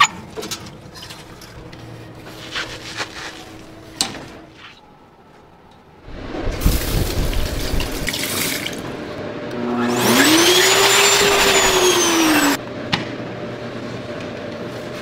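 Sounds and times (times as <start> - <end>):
electric hand dryer: 9.6 - 12.6.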